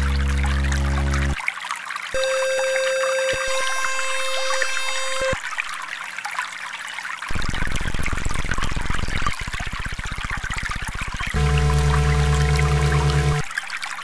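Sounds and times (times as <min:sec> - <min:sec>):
low pulsing hum: 0:00.0 - 0:01.4, 0:08.6 - 0:13.5
water trickling: 0:00.0 - 0:14.0
steady synthesized tone: 0:02.2 - 0:05.4, 0:11.4 - 0:13.5.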